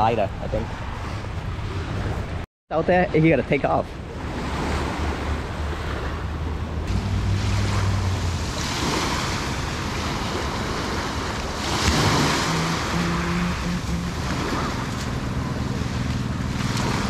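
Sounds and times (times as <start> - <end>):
waves washing on pebble shore: 6.9 - 13.5, 14.2 - 17.0.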